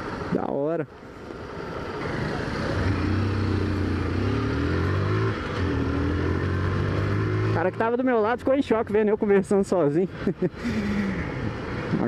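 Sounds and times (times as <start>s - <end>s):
motorcycle engine pulling away: 2.0s - 7.9s.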